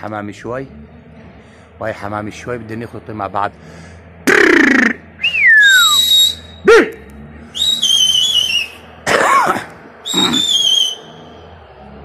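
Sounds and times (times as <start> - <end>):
man whistling loudly: 4.3 - 8.8, 10.0 - 11.1
breathy whistle blast: 5.2 - 6.7, 7.5 - 8.8, 10.0 - 11.2.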